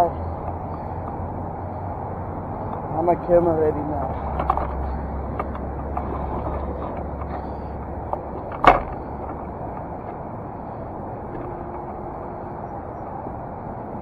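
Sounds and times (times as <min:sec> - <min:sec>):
car road and engine noise: 0:00.0 - 0:14.0
low hum: 0:04.1 - 0:14.0.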